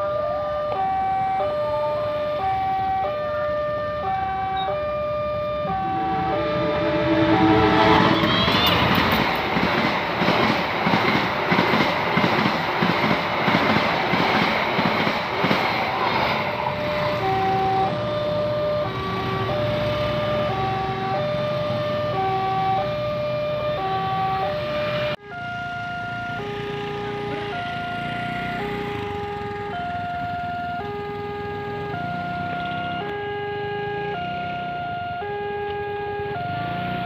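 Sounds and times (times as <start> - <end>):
level crossing warning alarm: 0.0 - 10.3, 14.9 - 37.0
passenger train rushing past: 2.3 - 22.4.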